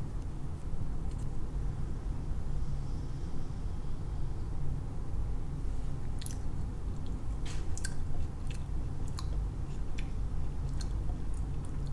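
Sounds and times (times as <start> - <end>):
person chewing petal: 6.1 - 11.9.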